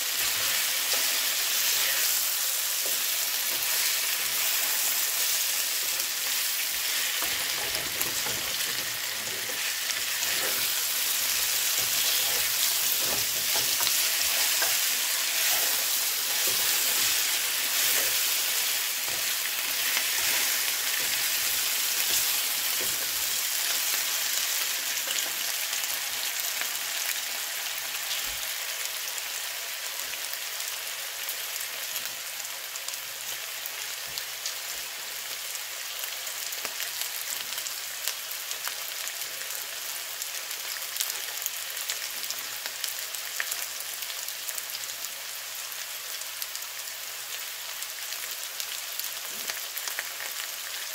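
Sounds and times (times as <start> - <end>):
vegetables sizzling in a frying pan: 0.0 - 50.9
spatula stirring in a pan: 0.1 - 25.4.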